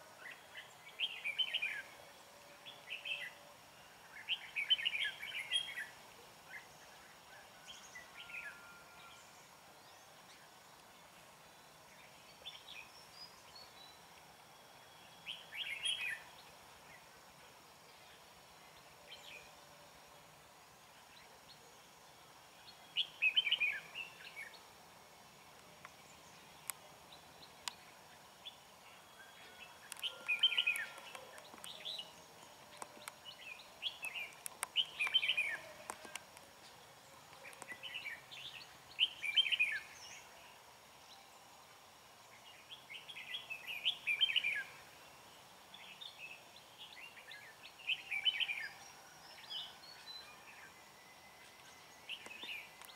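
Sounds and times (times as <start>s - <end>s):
bulbuls singing: 22.7s - 40.6s.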